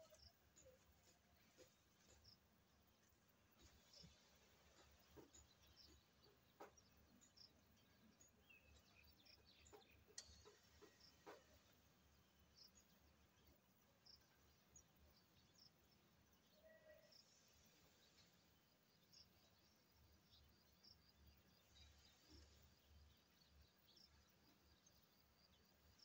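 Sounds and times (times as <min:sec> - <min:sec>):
faint bird chirps: 0:00.0 - 0:26.0
faint clicks and knocks: 0:09.4 - 0:11.8.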